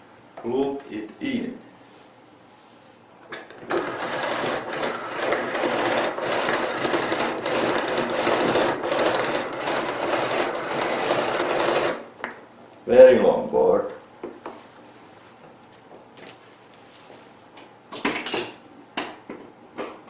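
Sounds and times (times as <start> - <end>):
cord reel whirring: 3.6 - 12.1.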